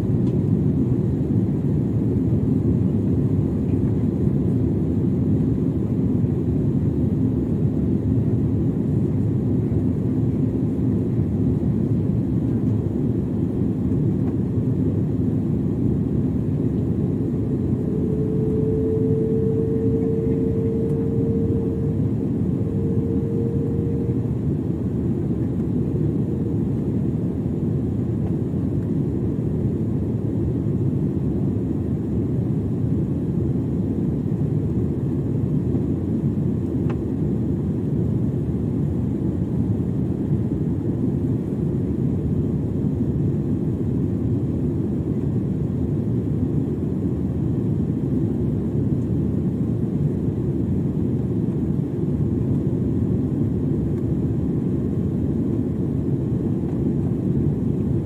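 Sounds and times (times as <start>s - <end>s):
airliner cabin engine rush: 0.0s - 58.0s
faint steady tone: 2.8s - 29.0s.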